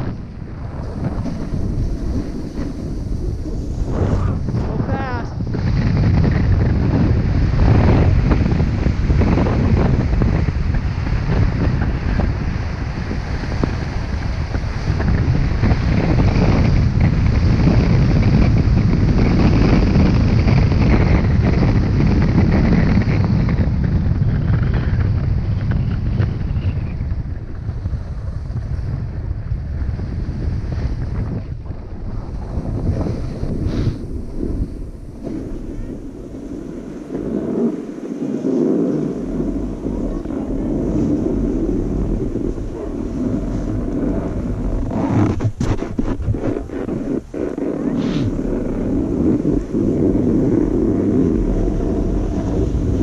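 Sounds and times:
skis scraping on snow: 0:00.0 - 0:23.4, 0:29.8 - 0:53.0
wind buffeting microphone: 0:00.0 - 0:53.0.

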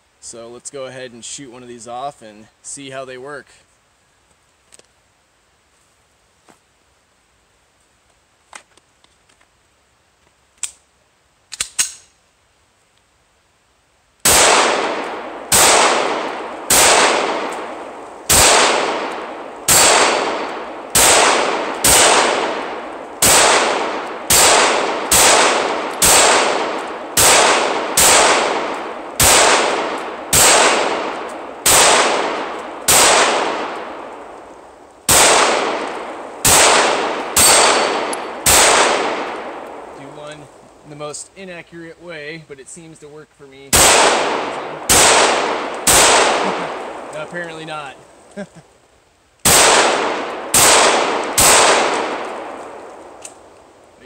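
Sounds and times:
pistol shots echoing: 0:14.2 - 0:34.2, 0:35.1 - 0:40.0, 0:43.7 - 0:47.9, 0:49.4 - 0:53.2.

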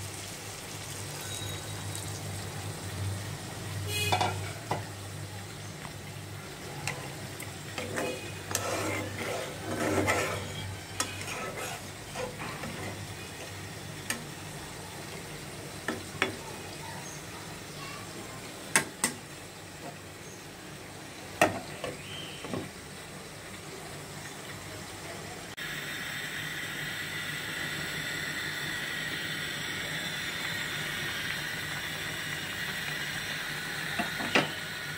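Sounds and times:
curry sizzling: 0:00.0 - 0:34.9
metal spatula scraping pan: 0:07.8 - 0:13.0.

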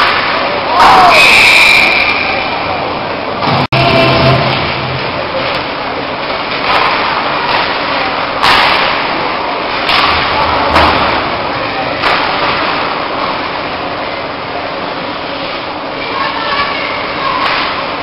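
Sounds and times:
hockey sticks and puck clacking: 0:00.0 - 0:01.6, 0:05.4 - 0:13.9, 0:17.2 - 0:18.0
crowd murmur: 0:00.3 - 0:18.0.

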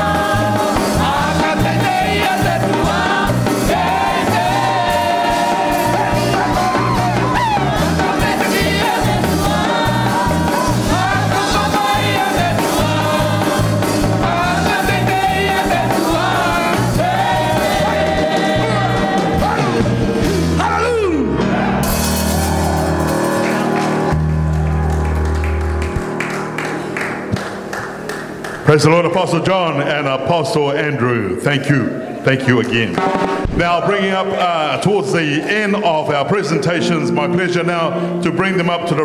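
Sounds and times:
group singing a hymn: 0:00.0 - 0:20.4
band with bass line: 0:00.0 - 0:29.1.

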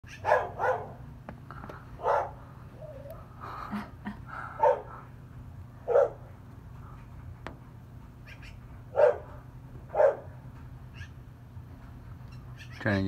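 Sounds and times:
dog barking: 0:00.1 - 0:01.0, 0:02.0 - 0:02.4, 0:04.6 - 0:04.9, 0:05.8 - 0:06.3, 0:08.9 - 0:10.3.

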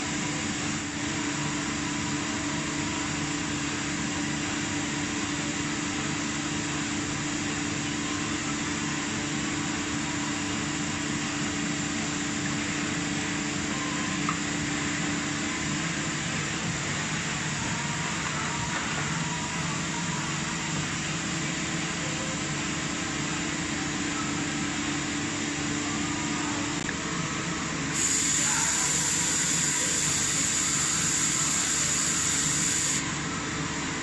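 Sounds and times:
loud hiss: 0:27.9 - 0:33.0
machine tool whirring: 0:27.9 - 0:33.1.

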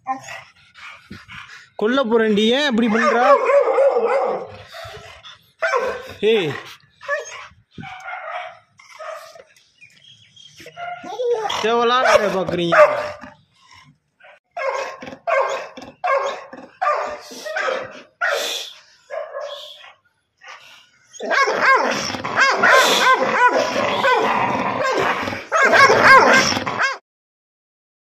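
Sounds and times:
dog howling: 0:02.8 - 0:04.5, 0:21.2 - 0:27.0
dog crying: 0:02.8 - 0:06.2, 0:07.0 - 0:09.4, 0:10.7 - 0:13.1, 0:14.6 - 0:18.5, 0:21.1 - 0:27.0.

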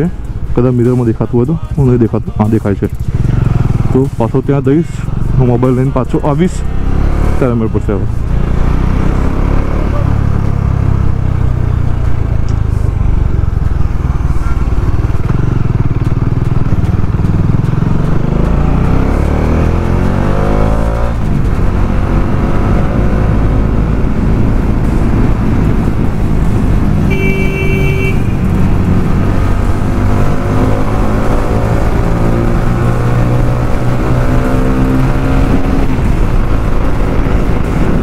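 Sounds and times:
motorcycle engine revving: 0:00.0 - 0:38.0
wind rumble on microphone: 0:19.5 - 0:38.0
vehicle horn beep: 0:27.0 - 0:28.4.

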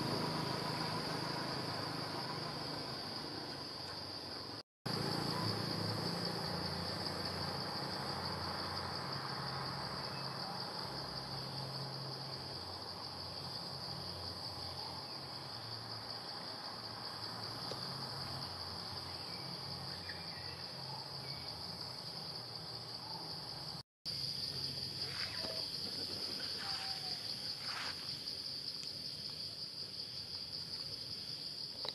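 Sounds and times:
insects chirring: 0:00.0 - 0:31.9.

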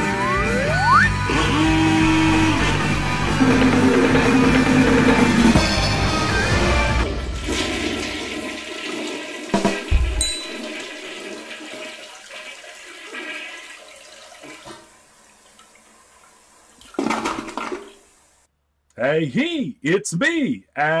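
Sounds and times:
toilet flush swirling water: 0:07.0 - 0:18.5.

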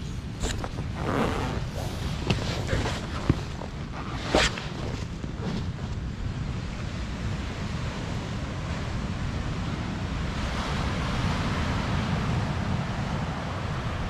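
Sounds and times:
wind rumbling on microphone: 0:00.0 - 0:14.0
ocean surf breaking on beach: 0:01.6 - 0:14.0.

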